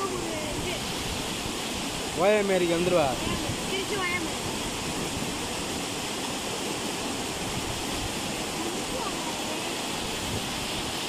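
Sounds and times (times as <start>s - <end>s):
water gushing into pool: 0.0s - 11.0s.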